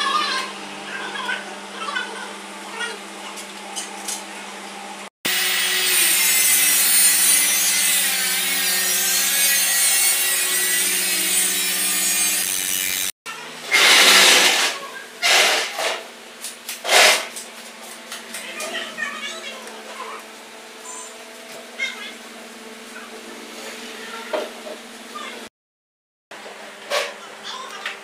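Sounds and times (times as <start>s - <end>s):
power tool running: 5.3s - 16.0s.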